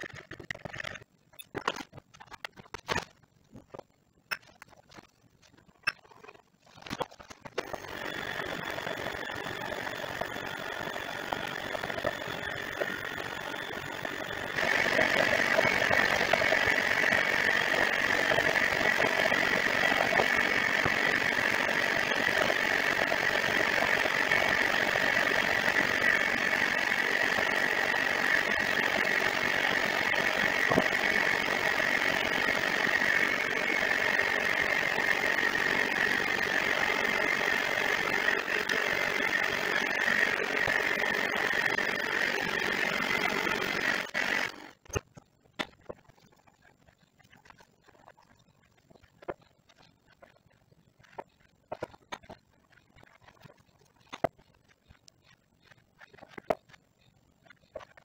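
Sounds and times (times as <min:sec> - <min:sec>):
electric hand mixer whine: 0:06.8 - 0:45.0.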